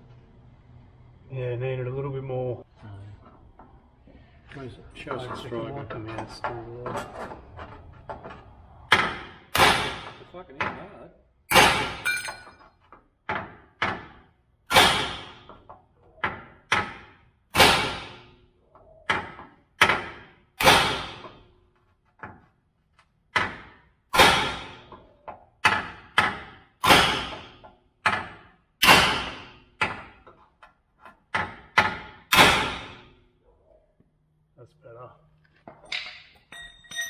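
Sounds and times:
hammer striking steel punch: 8.9s - 10.2s, 11.5s - 12.5s, 14.7s - 15.4s, 23.4s - 24.9s, 25.6s - 30.1s, 31.5s - 33.1s.

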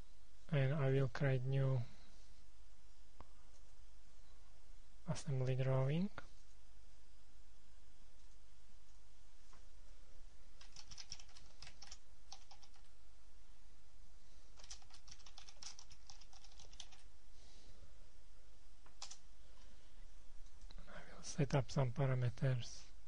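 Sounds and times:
steady low hum: 0.0s - 23.0s
typing on computer keyboard: 10.6s - 12.9s, 14.6s - 17.1s, 18.9s - 19.2s.

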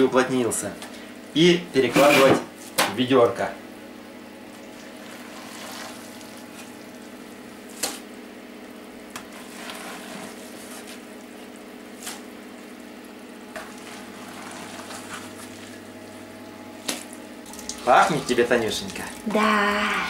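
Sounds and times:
sieve squelching and scraping pulp: 4.6s - 6.8s, 9.1s - 12.8s, 13.5s - 16.2s
steady hum: 10.5s - 20.0s.

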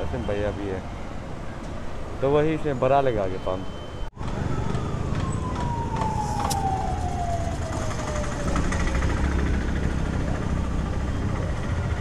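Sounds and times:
whine sliding down in pitch: 5.2s - 8.8s.

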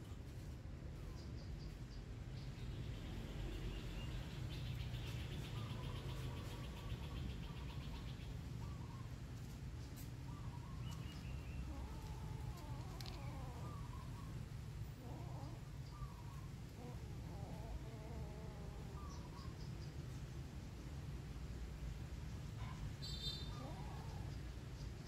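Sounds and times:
soft wavering animal calls: 5.4s - 20.2s, 22.6s - 25.0s.

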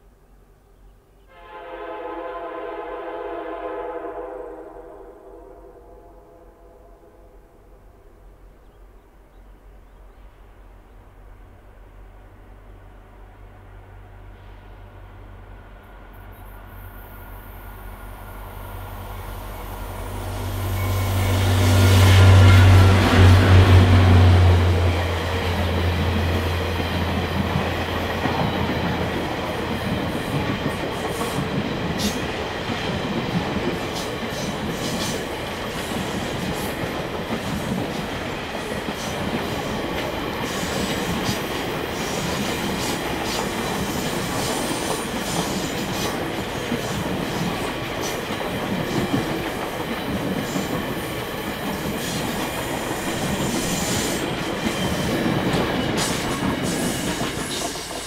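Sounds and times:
locomotive engine hum: 9.6s - 35.8s
train wheels rumbling on rails: 11.3s - 58.0s.

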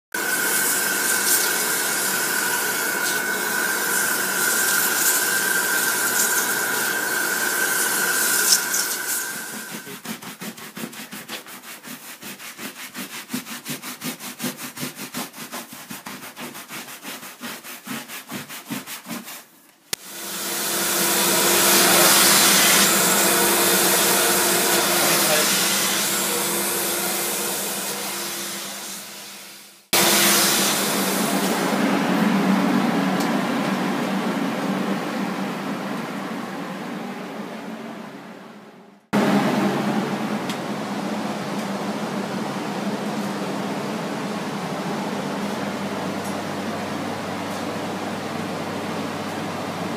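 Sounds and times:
scrubbing foamy fabric: 8.1s - 19.7s.

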